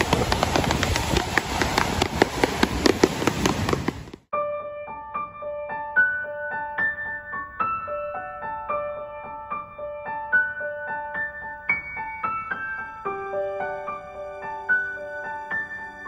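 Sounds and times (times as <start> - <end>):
surf breaking on rocks: 0.0 - 4.2
electric piano melody: 4.3 - 16.0.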